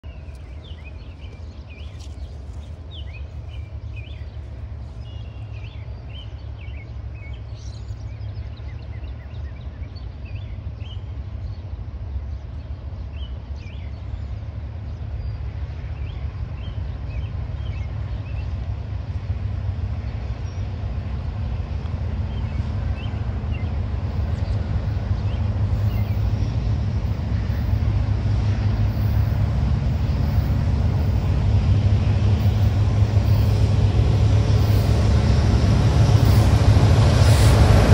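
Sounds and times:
freight train rumbling: 0.0s - 37.9s
small birds chirping: 0.1s - 11.7s.

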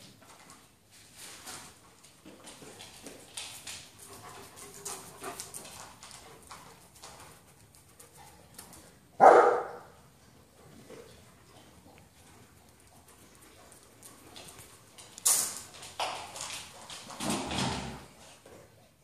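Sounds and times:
dog claws clicking on floor: 0.0s - 9.0s, 10.8s - 18.9s
dog barking: 9.2s - 10.0s.

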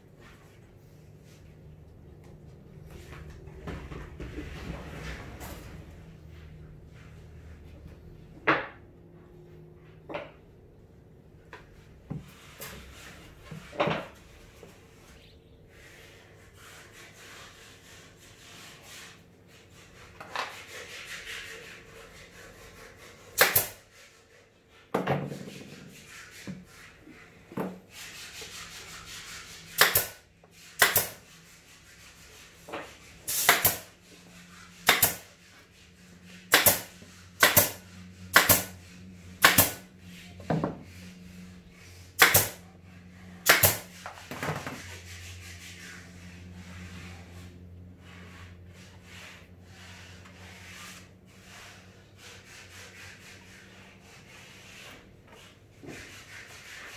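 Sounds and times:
panels rubbing and scraping: 2.8s - 8.8s, 11.7s - 56.9s
nail gun shots: 36.5s - 36.8s, 37.4s - 38.7s, 42.2s - 42.6s.

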